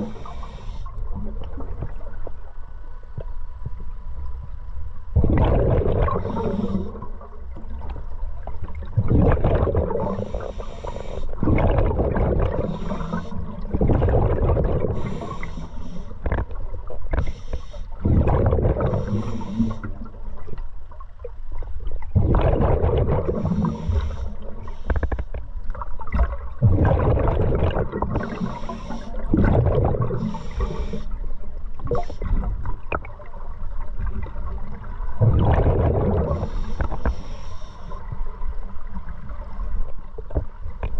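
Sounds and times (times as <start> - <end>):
exhaled bubbles rumbling underwater: 0.0 - 40.9
hissing regulator inhalation: 10.1 - 11.4, 12.5 - 13.5, 15.0 - 16.2, 19.0 - 19.9, 23.4 - 25.2, 28.2 - 29.2, 30.2 - 31.2, 36.3 - 38.0.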